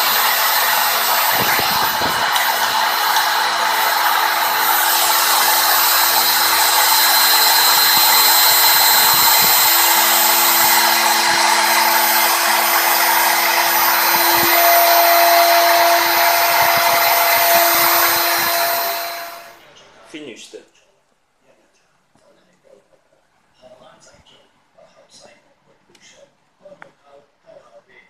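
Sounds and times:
milling spindle whine: 0.0 - 19.6
lower whine tone: 0.0 - 19.7.

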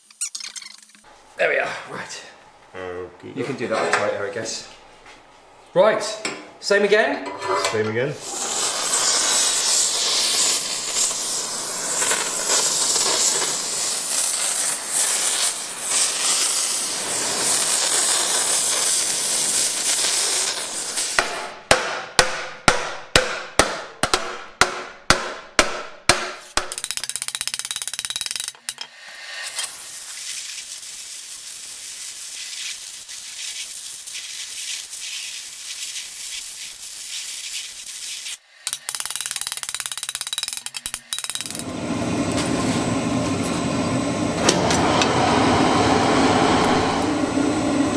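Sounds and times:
gas torch hissing: 8.1 - 21.4, 28.8 - 38.4, 41.2 - 47.9.

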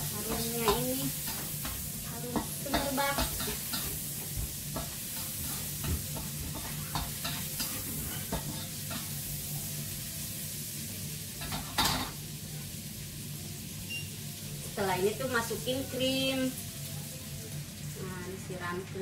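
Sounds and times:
spatula clattering in pan: 0.0 - 9.3, 11.4 - 12.2
spatula scraping a pan: 0.0 - 9.4
food sizzling in a frying pan: 0.0 - 19.0.

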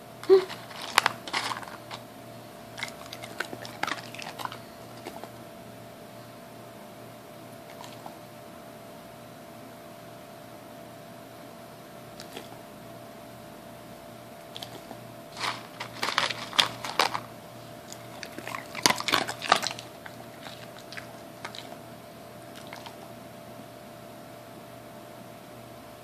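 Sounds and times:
dog crunching a hard treat: 0.4 - 2.1, 2.7 - 5.4, 7.7 - 8.2, 12.2 - 12.6, 14.5 - 23.1.

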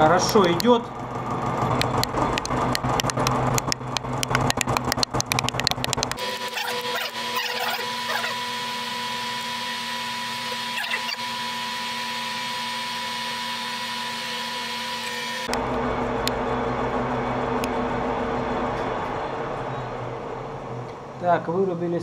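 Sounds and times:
sharp ticks: 0.0 - 0.8, 1.7 - 6.2
lathe machine whine: 6.2 - 20.8.

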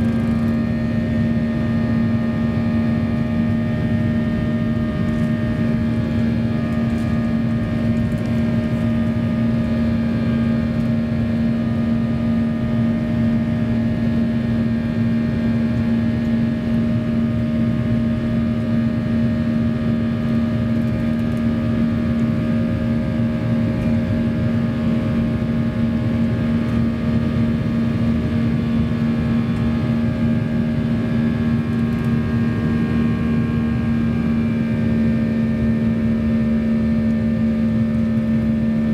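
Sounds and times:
jet engine drone in cabin: 0.0 - 38.9.

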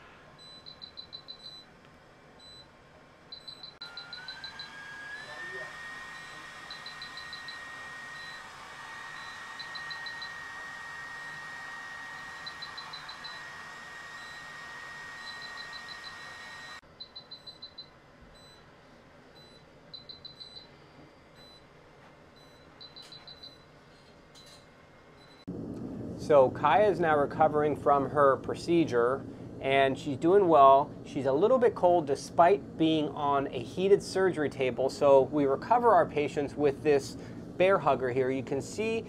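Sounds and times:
high beeps: 0.4 - 1.7, 3.3 - 4.7, 6.2 - 8.4, 17.0 - 18.6, 19.4 - 20.7, 22.4 - 23.7
machine hiss: 3.8 - 16.8.

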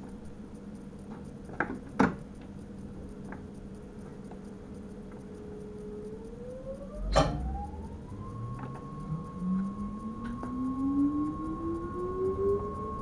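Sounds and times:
train traction motors whining: 5.3 - 13.0.

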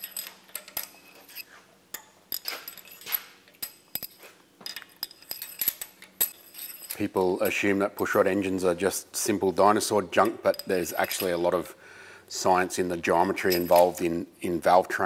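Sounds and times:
metal rods clinking: 0.0 - 7.6, 10.4 - 11.4, 13.4 - 14.0.

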